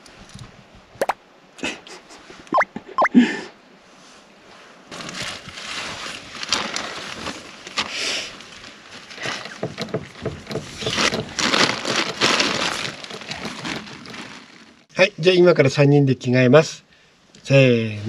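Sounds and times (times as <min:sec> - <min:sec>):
plastic and cloth bags rustling: 0:04.9 - 0:14.9.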